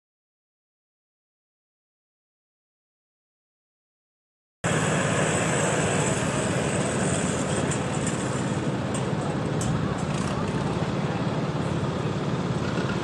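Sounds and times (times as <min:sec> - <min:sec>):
engine running steadily: 0:04.6 - 0:13.0
broad hiss: 0:04.7 - 0:08.7.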